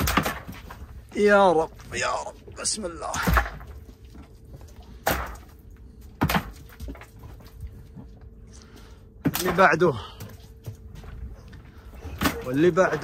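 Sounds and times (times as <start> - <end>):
knocks and thuds of fish: 0.0 - 1.0, 3.1 - 8.2, 9.2 - 11.3, 12.0 - 13.0
faint steady hum: 0.0 - 13.0.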